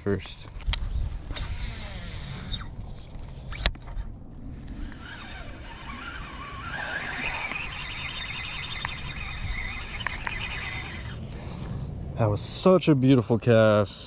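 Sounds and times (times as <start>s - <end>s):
fishing reel being cranked: 1.3s - 2.7s, 4.6s - 11.2s.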